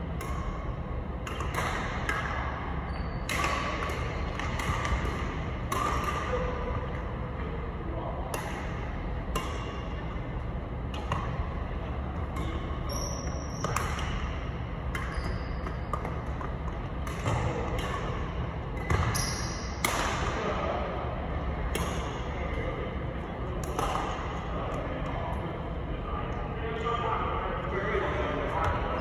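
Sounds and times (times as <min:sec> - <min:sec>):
steady low hum: 0:00.0 - 0:29.0
rackets hitting shuttlecock: 0:00.1 - 0:07.6, 0:08.2 - 0:20.7, 0:21.4 - 0:22.7, 0:23.5 - 0:24.9.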